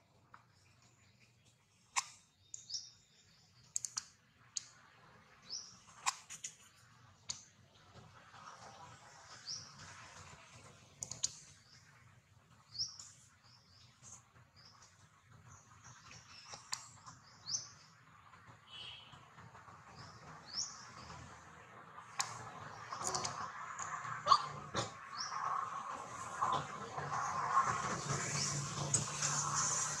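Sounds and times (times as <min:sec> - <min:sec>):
sharp clicks: 0:03.6 - 0:04.8
birds chirping: 0:08.5 - 0:30.0.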